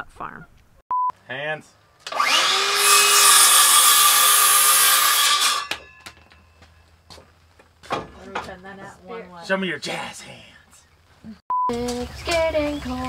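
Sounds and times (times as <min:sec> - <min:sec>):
circular saw cutting board: 0:02.0 - 0:06.4
saw blade whine spinning down: 0:02.1 - 0:06.1.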